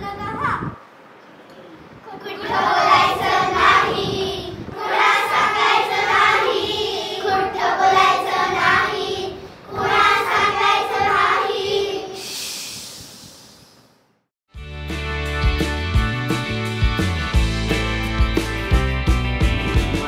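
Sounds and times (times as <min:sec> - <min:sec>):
children singing in unison: 0:02.2 - 0:12.4.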